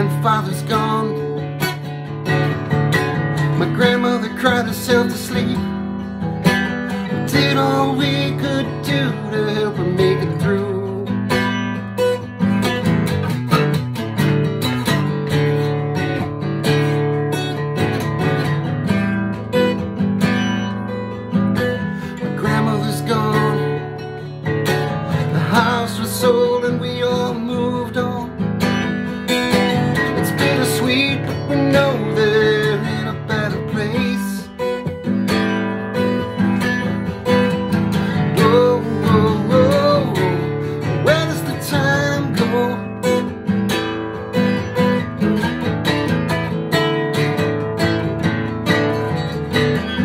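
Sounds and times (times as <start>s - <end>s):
person singing: 0.0s - 1.8s, 3.4s - 6.0s, 6.9s - 11.6s, 21.6s - 43.4s
acoustic guitar strumming: 0.0s - 50.0s.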